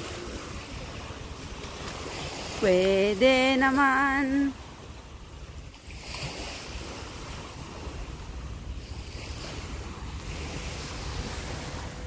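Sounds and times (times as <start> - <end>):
wind on microphone: 4.3 - 12.0.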